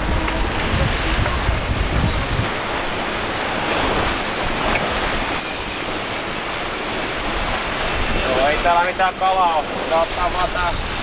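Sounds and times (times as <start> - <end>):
wind on microphone: 0.0 - 8.7
water rushing past hull: 0.0 - 11.0.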